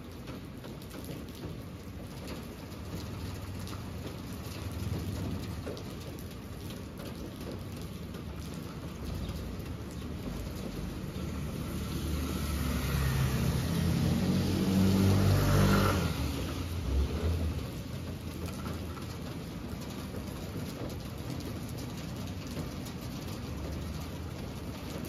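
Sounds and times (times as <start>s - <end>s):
car driving past on wet road: 10.0s - 19.1s.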